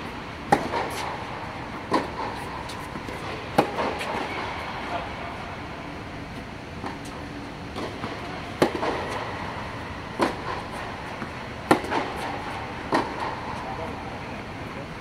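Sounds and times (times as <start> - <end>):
tennis ball bouncing: 0.4 - 5.2, 6.3 - 13.8
tennis racquet hitting ball: 0.4 - 5.2, 6.8 - 13.7.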